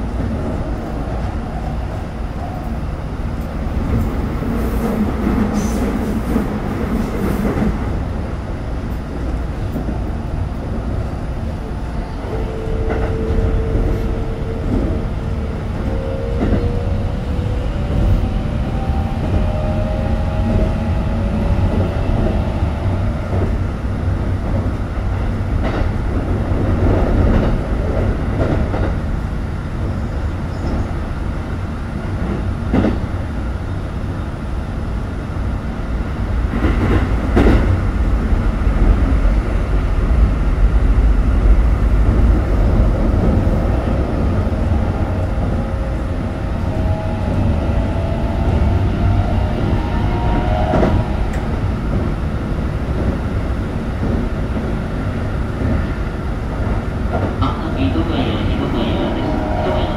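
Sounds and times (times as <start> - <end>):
train motor and wheel rumble: 0.0 - 59.9
rail joint clacks: 12.2 - 16.9, 36.5 - 37.8.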